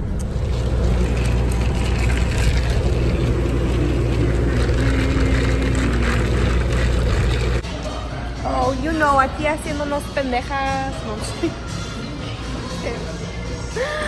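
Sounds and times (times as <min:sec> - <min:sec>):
low background rumble: 0:00.0 - 0:07.6.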